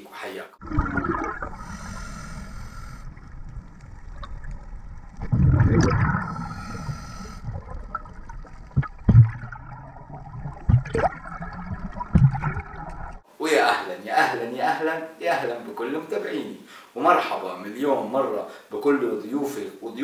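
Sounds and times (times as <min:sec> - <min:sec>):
underwater bubbles gurgling: 0:00.6 - 0:13.2.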